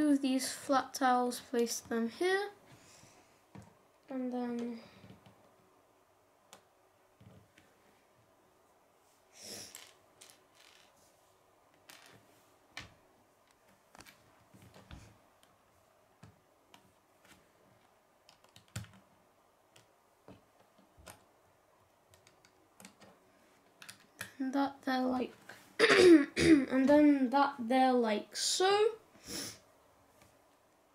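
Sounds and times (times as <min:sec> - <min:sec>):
plastic bricks clicking: 0:23.8 - 0:24.3.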